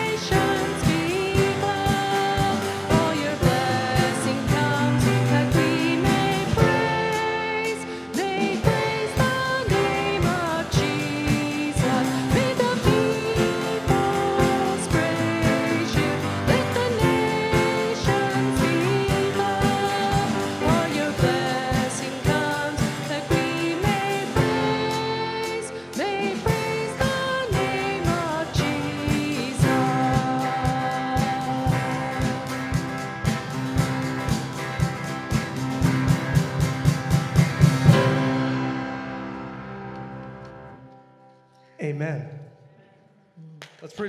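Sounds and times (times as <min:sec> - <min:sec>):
person singing: 0:00.0 - 0:33.9
electric guitar: 0:00.0 - 0:41.7
drums: 0:00.0 - 0:42.2
piano: 0:00.0 - 0:42.8
acoustic guitar: 0:00.0 - 0:44.0.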